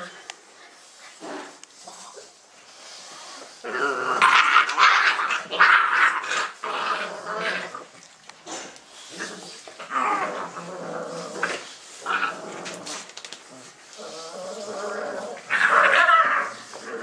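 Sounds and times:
puppies growling and yapping: 0:03.2 - 0:17.0.

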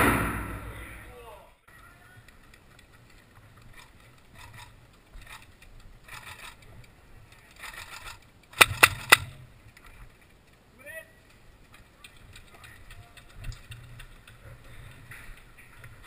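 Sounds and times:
airsoft rifle shots: 0:00.0 - 0:01.0, 0:08.5 - 0:09.4.

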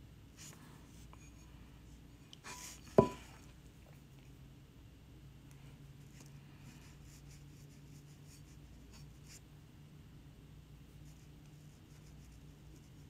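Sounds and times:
low steady hum: 0:00.0 - 0:13.0
paintbrush strokes on ceramic: 0:00.4 - 0:03.4.

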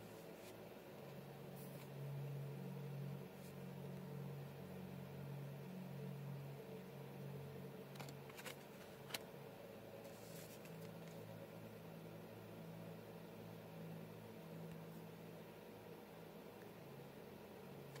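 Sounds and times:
faint low room hum: 0:00.0 - 0:18.0
cards clicking and rustling: 0:07.9 - 0:09.2.

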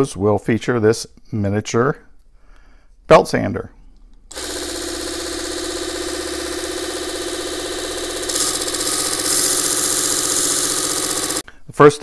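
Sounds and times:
belt sander motor whine: 0:04.3 - 0:11.4.

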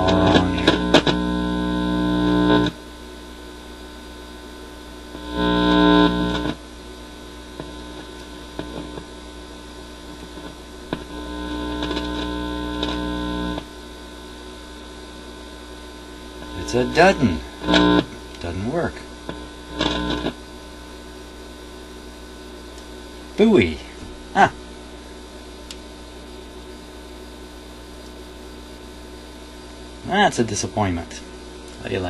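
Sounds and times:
mains hum through speaker: 0:00.0 - 0:32.0
clicks: 0:11.7 - 0:13.7, 0:19.2 - 0:20.4.

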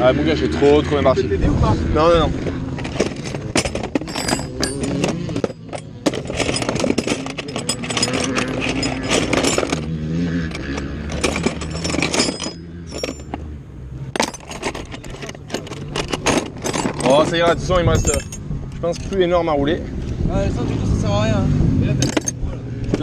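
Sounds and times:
motorcycle engines droning: 0:00.0 - 0:23.0
metallic clicks of tools: 0:03.0 - 0:09.9.

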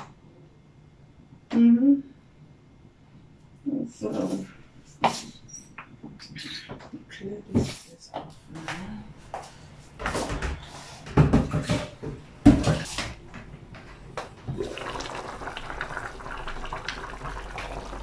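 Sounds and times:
stew simmering and bubbling: 0:14.0 - 0:18.0.

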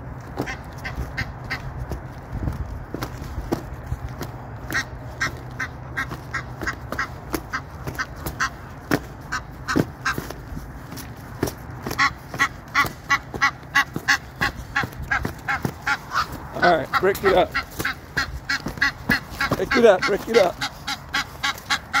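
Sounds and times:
wings beating: 0:00.2 - 0:22.0
geese honking: 0:00.4 - 0:01.7, 0:04.6 - 0:10.4, 0:11.8 - 0:22.0.

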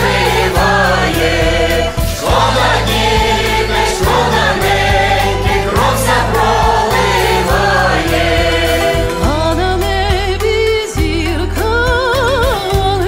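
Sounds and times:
group singing a carol: 0:00.0 - 0:09.4
instrumental accompaniment: 0:00.0 - 0:13.0.

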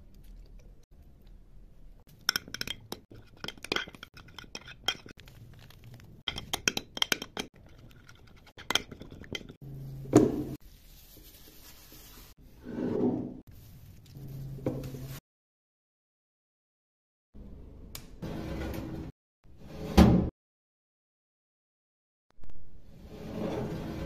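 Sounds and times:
spoon scraping a glass dish: 0:02.2 - 0:05.2, 0:06.3 - 0:09.6.

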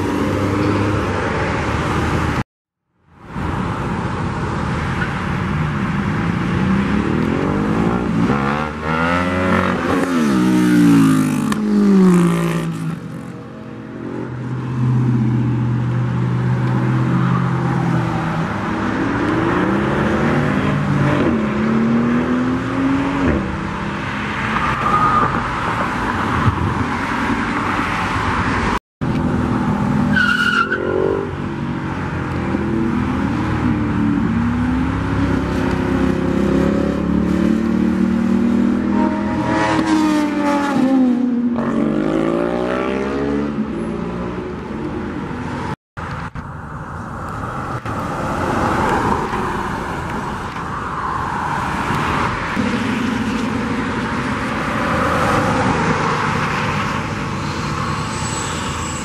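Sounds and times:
cars accelerating hard: 0:06.1 - 0:26.4, 0:27.2 - 0:44.4.

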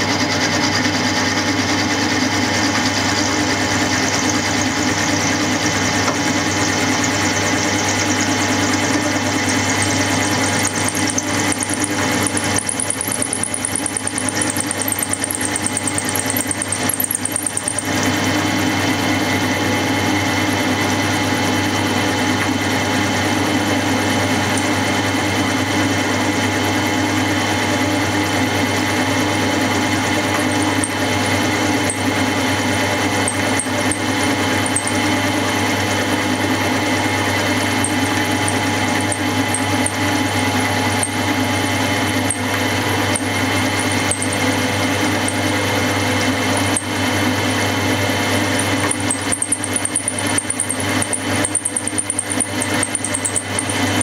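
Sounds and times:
milling machine cutting metal: 0:00.0 - 0:54.0.

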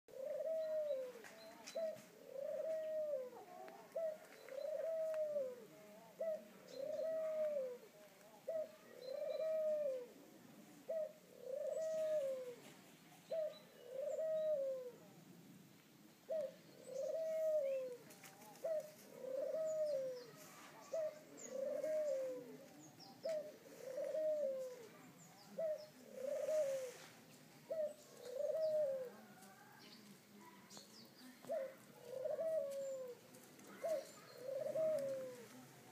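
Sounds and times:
dove cooing: 0:00.1 - 0:15.2, 0:16.3 - 0:29.8, 0:31.2 - 0:35.9.

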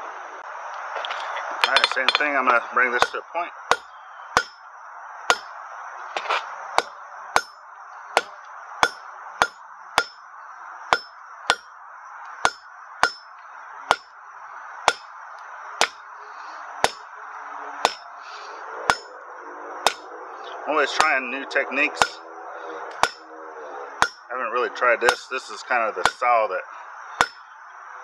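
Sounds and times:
hammer striking metal on anvil: 0:01.6 - 0:02.4, 0:03.0 - 0:04.6, 0:06.8 - 0:07.6, 0:08.2 - 0:10.2, 0:10.9 - 0:11.7, 0:12.4 - 0:13.3, 0:13.9 - 0:14.1, 0:14.9 - 0:15.1, 0:15.8 - 0:16.0, 0:16.8 - 0:17.0, 0:17.8 - 0:18.0, 0:18.9 - 0:19.1, 0:22.0 - 0:22.2, 0:22.9 - 0:23.2, 0:24.0 - 0:24.3, 0:26.0 - 0:26.2, 0:27.2 - 0:27.4.

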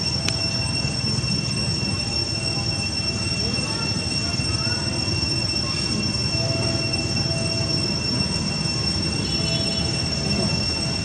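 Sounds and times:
high-pitched insect drone: 0:00.0 - 0:11.0.

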